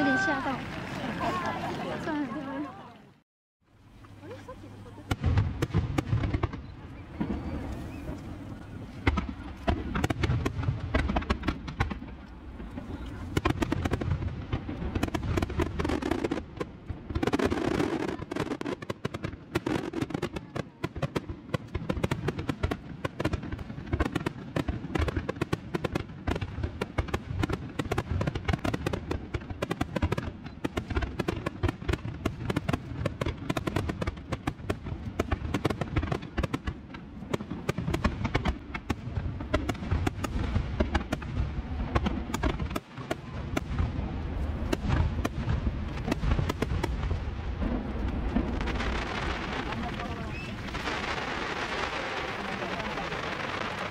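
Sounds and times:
fireworks bursting and crackling: 4.0 - 53.9.

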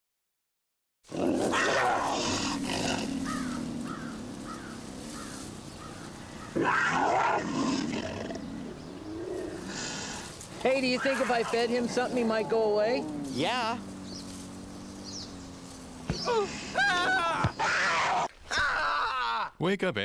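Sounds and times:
cougar growling: 1.1 - 16.8.

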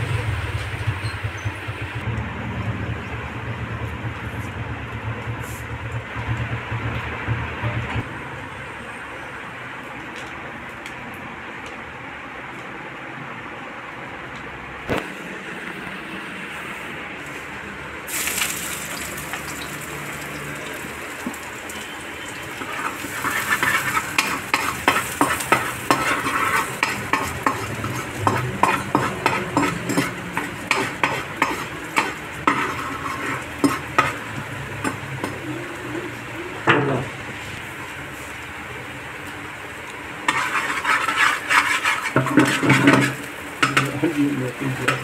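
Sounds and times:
oil sizzling in frying pan: 18.1 - 45.0
ladle scraping and clinking on pan: 22.6 - 34.2, 40.3 - 43.9.

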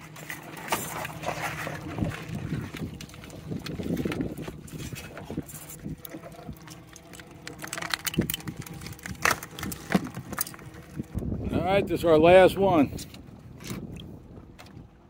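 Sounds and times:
low wind rumble: 1.7 - 15.0
knocks and clinks of gear: 6.6 - 11.0.

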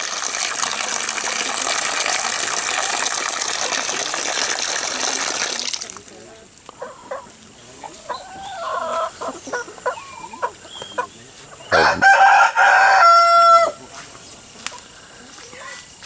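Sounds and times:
chickens clucking softly: 6.8 - 12.2
rooster crowing: 11.7 - 13.8.

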